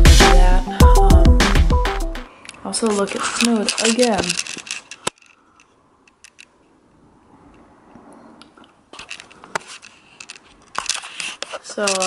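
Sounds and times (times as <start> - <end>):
camera handling rustle: 2.8 - 6.6, 8.9 - 12.0.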